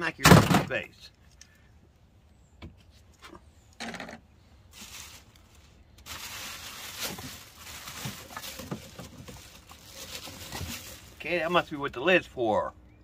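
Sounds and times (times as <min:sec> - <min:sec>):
plastic bag rustling: 0:04.7 - 0:11.6.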